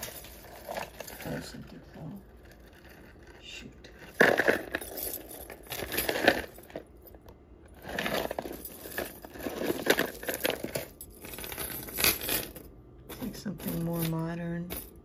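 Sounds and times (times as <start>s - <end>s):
bag of jewelry crinkling: 4.0s - 7.0s, 7.7s - 12.6s.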